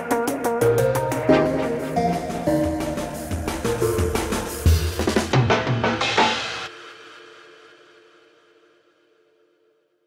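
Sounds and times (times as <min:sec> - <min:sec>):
music with drum beat: 0:00.0 - 0:06.7.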